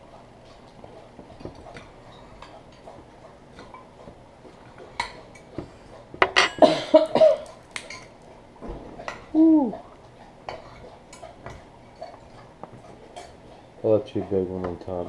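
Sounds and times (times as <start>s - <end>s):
forks clinking on ceramic plates: 6.2s - 6.8s.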